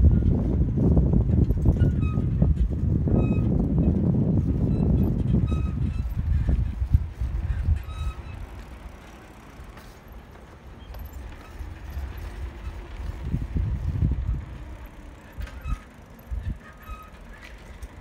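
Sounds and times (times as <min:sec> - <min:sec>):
wind buffeting microphone: 0:00.0 - 0:09.8, 0:10.8 - 0:18.0
bicycle tyres rolling on concrete: 0:00.0 - 0:18.0
faint short squeaks: 0:01.7 - 0:03.5, 0:04.6 - 0:10.0, 0:10.7 - 0:13.5, 0:14.7 - 0:18.0.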